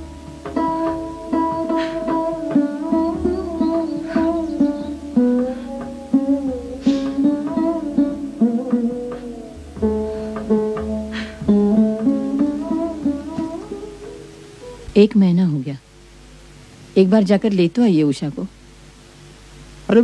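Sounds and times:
plucked string melody: 0:00.0 - 0:15.3.

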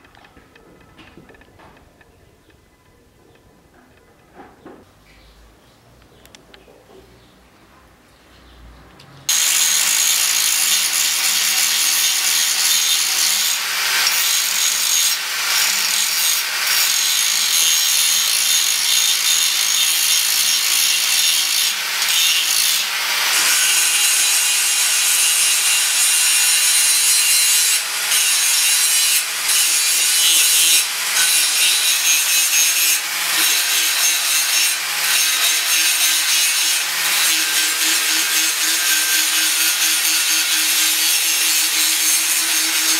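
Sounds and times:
angle grinder grinding steel: 0:09.3 - 0:42.9.

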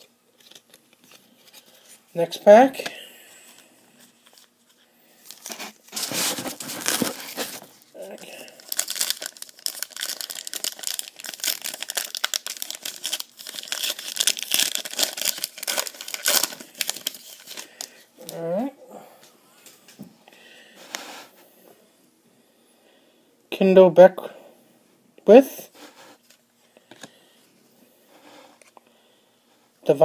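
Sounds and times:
foil wrapper crinkling and tearing: 0:00.0 - 0:01.9, 0:04.2 - 0:18.4.

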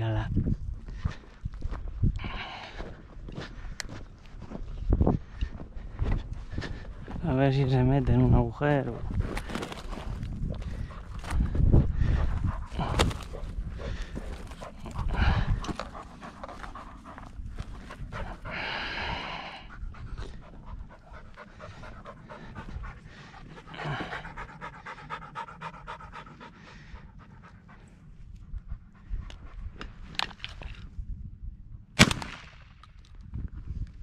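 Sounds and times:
dog panting hard: 0:08.9 - 0:30.0.

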